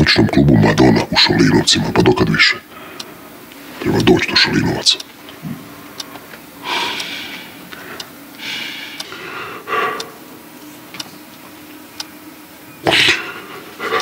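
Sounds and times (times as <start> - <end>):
breathy gasps: 6.6 - 10.2.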